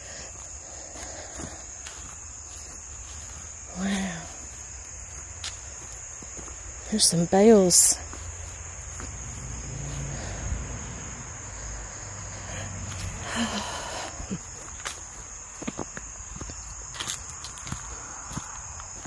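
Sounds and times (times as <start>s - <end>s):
footsteps on grass and leaves: 0.0s - 10.1s, 11.5s - 19.0s
insects trilling: 0.0s - 19.0s.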